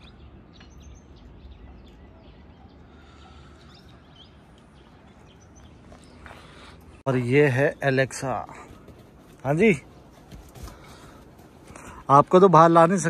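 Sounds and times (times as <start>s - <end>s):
bird chirps: 0.0s - 7.0s.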